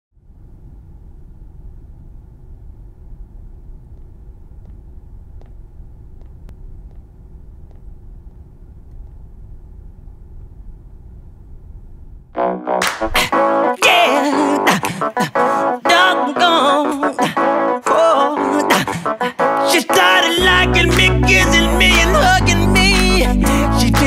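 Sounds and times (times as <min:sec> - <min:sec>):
low rumble: 0:00.2 - 0:13.2
keyboard-led music: 0:12.4 - 0:24.0.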